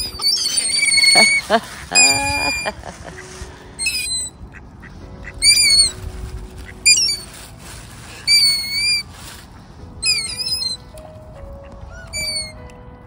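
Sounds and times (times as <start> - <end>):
gull calling: 0.0 - 4.6, 5.2 - 6.0, 6.8 - 7.3, 8.3 - 9.1, 10.0 - 12.6.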